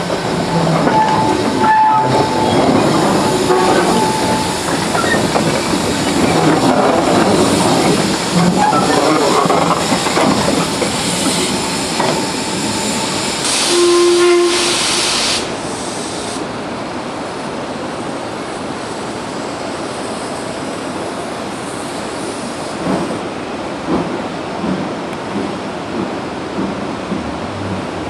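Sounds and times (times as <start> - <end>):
locomotive rumble: 0.0 - 14.9
steam locomotive hissing: 0.0 - 16.6
steam whistle toot: 13.5 - 15.4.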